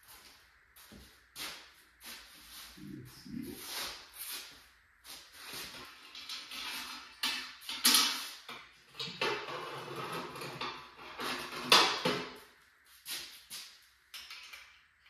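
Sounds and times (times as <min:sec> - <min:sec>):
scraping and shuffling of parts: 0:03.5 - 0:14.8.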